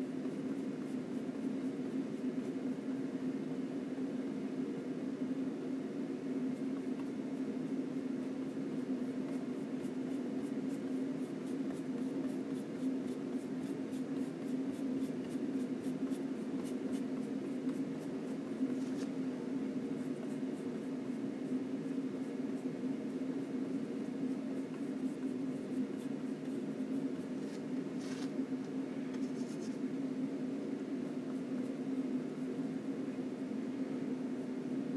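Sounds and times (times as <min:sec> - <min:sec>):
paint brush scratching: 0:20.0 - 0:28.3, 0:29.2 - 0:29.8.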